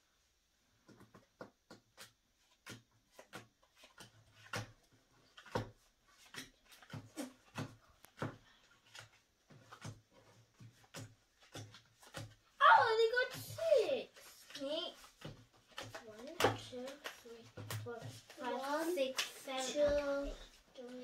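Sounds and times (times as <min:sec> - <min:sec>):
cards tapping on tabletop: 0:00.8 - 0:12.6, 0:14.2 - 0:18.4.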